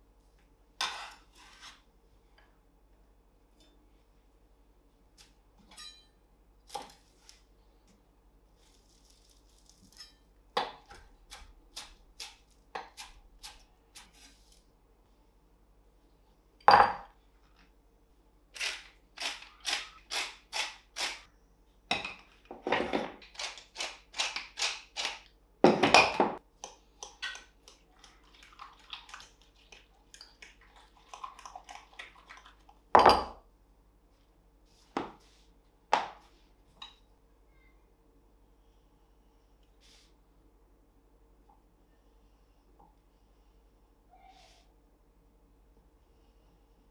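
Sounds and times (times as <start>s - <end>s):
pepper mill grinding: 18.6s - 21.2s, 23.2s - 25.3s.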